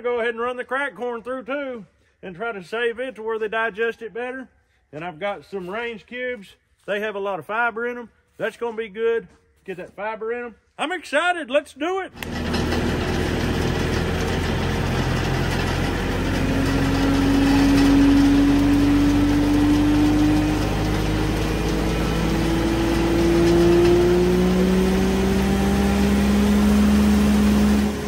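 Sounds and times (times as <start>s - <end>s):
hammer mill whine rising in pitch: 12.2s - 28.0s
lower whine: 12.2s - 28.0s
tractor engine running: 12.2s - 28.0s.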